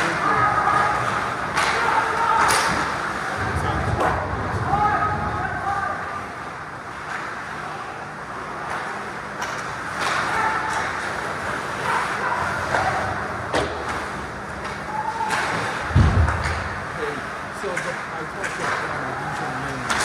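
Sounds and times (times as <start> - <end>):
sticks and puck clacking: 0.8 - 3.0, 8.4 - 16.7, 17.6 - 20.0
heavy low thump: 15.9 - 16.8.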